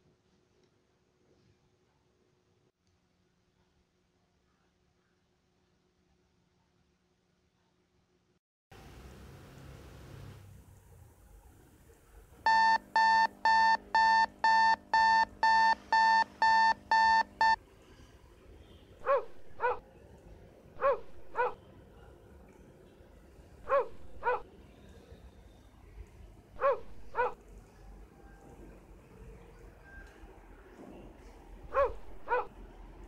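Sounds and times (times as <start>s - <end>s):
alarm clock beeping: 12.5s - 17.6s
dog barking: 19.0s - 19.8s, 20.8s - 21.6s, 23.6s - 24.5s, 26.6s - 27.4s, 31.7s - 32.6s.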